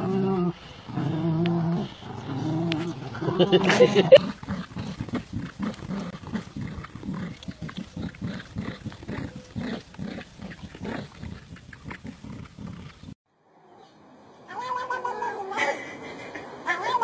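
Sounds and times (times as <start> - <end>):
dogs growling in play: 0.0 - 13.2.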